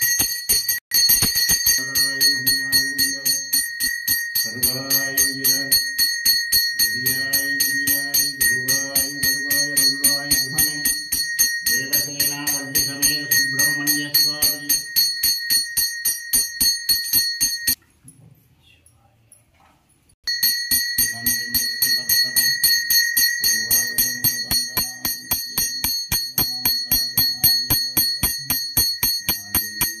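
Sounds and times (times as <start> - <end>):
man chanting: 1.8 - 3.6, 4.5 - 5.9, 6.8 - 14.8, 21.1 - 22.8, 23.4 - 30.0
hand bell rung fast: 20.3 - 30.0.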